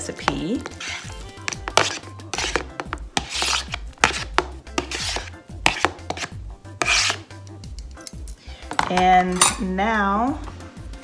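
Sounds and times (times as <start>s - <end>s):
fork scraping a plastic plate: 0.3s - 7.3s.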